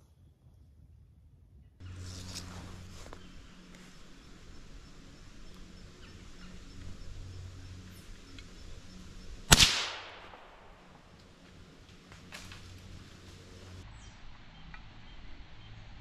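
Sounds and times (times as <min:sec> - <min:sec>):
rifle shot with echo: 0:09.5 - 0:11.5.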